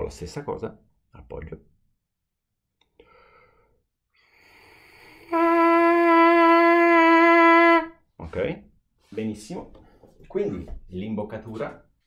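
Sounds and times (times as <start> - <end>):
trumpet mouthpiece buzzing: 4.9 - 7.9.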